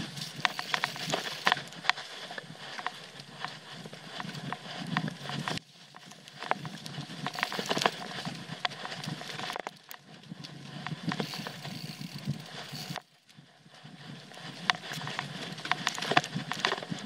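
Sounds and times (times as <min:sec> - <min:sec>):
bike clicking and rattling: 0:00.0 - 0:17.0
bike tyres rumbling on dirt: 0:00.0 - 0:17.0.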